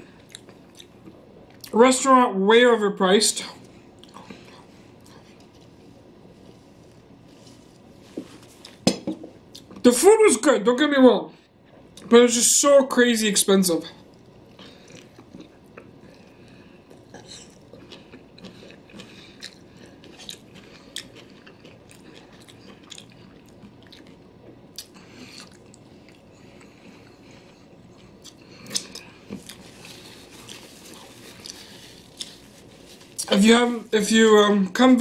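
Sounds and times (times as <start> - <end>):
man chewing: 0.0 - 1.7, 3.6 - 8.8, 9.4 - 9.8, 14.0 - 33.4
paper napkin rustling: 5.6 - 8.8, 29.5 - 34.4.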